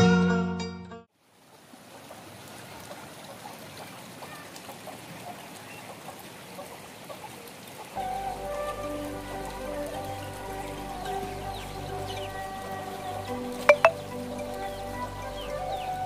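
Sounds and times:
running water hiss: 1.2s - 16.0s
background music: 8.0s - 16.0s.

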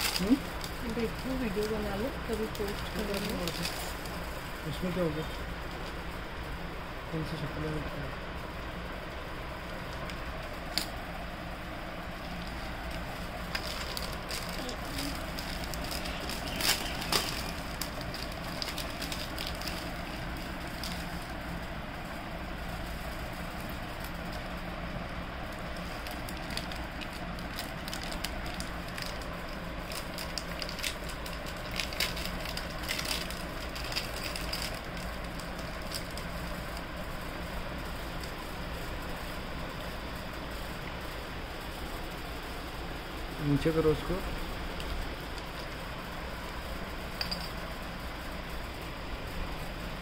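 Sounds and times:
plastic packets crinkling: 0.0s - 5.2s, 12.1s - 21.6s, 22.7s - 37.5s
steady low hum: 0.0s - 50.0s.

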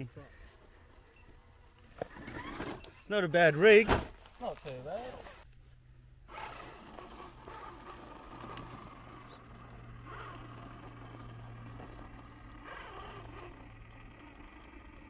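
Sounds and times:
electric motor humming: 6.2s - 15.0s
tyres scrabbling on rock: 6.3s - 14.8s.

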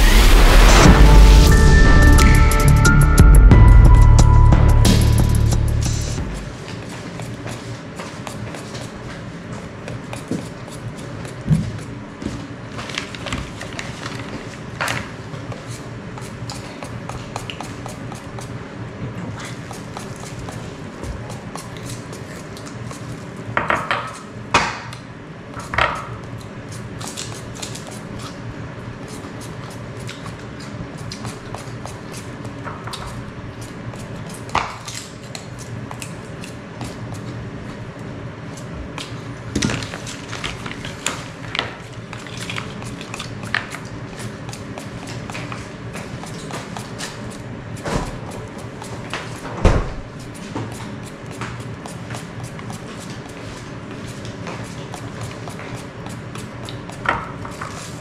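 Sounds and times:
steady low hum: 0.0s - 58.0s
knife clicking and scraping fruit: 6.8s - 12.0s, 14.8s - 18.6s, 19.3s - 37.4s, 39.9s - 49.5s, 50.1s - 58.0s.

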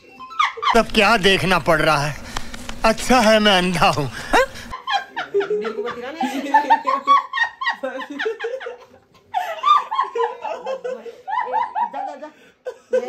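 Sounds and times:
people laughing: 0.0s - 13.0s
people speaking: 0.8s - 8.5s.

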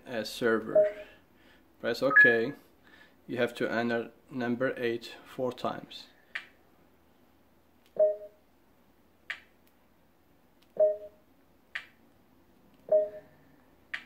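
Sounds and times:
short low tv beeps: 2.1s - 2.6s.

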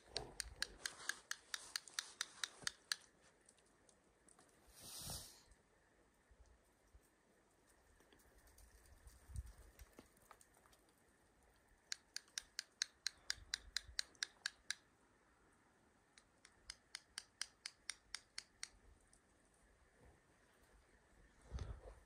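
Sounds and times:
squirrel call clicks: 0.0s - 3.1s, 11.9s - 14.8s, 16.2s - 18.8s.

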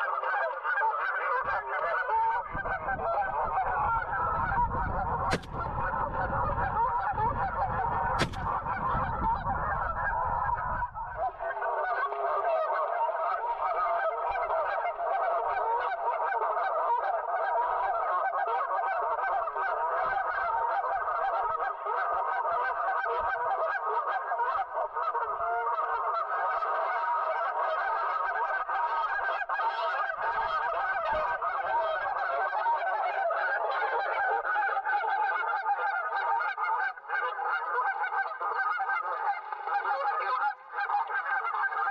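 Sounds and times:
geese honking: 0.0s - 41.9s
sharp click: 5.3s - 5.7s, 8.2s - 8.7s.

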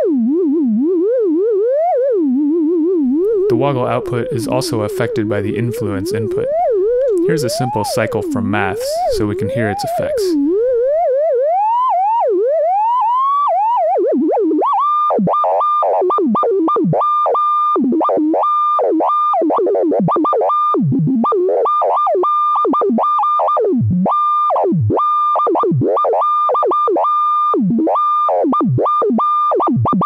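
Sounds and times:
synthesizer tone with swooping pitch: 3.0s - 11.6s.

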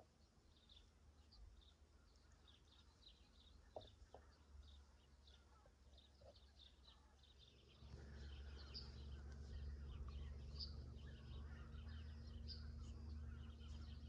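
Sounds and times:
lower bird calls: 0.0s - 14.0s
small birds chirping: 0.0s - 14.0s
steady low rumble: 7.6s - 14.0s.

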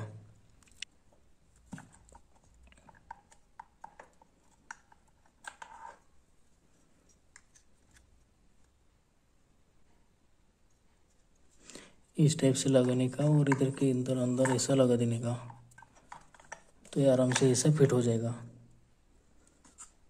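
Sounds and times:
small parts clicking and tapping: 1.6s - 6.0s, 13.1s - 17.7s.

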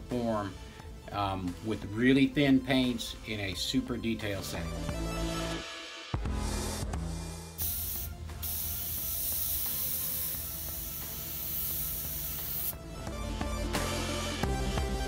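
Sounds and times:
airbrush air hiss: 7.6s - 12.8s.

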